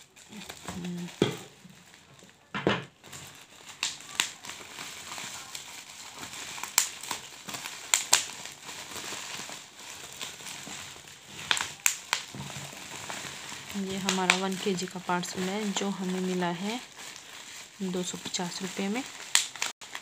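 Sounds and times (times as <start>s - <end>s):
bubble wrap crinkling: 0.0s - 20.0s
sharp plastic crackles: 0.0s - 20.0s.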